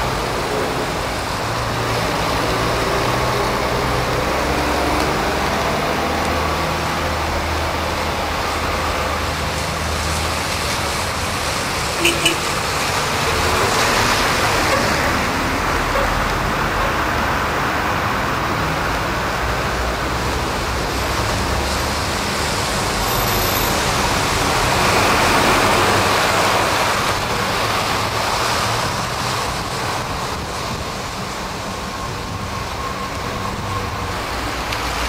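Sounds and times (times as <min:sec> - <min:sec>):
diesel lorry engines: 0:00.0 - 0:35.0
tyres hissing on wet road: 0:00.0 - 0:35.0.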